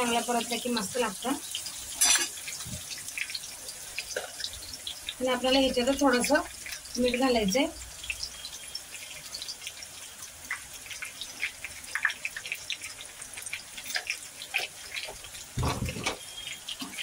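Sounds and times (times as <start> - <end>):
spices sizzling in hot oil: 0.0 - 17.0
loud thud: 15.6 - 16.0.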